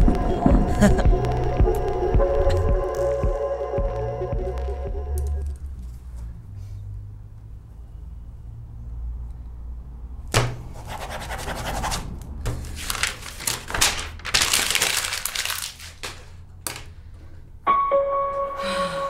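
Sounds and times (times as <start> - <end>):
paper rustling and flapping: 11.6 - 17.0.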